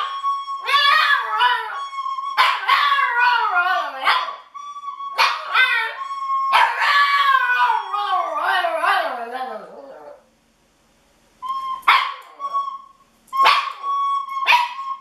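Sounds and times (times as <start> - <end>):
dog howling: 0.6 - 4.4, 5.1 - 10.2.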